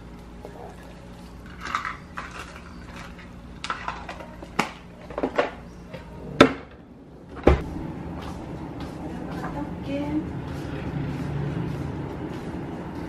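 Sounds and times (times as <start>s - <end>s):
steady low hum: 0.0s - 13.0s
kitchen utensils clattering: 1.4s - 5.6s.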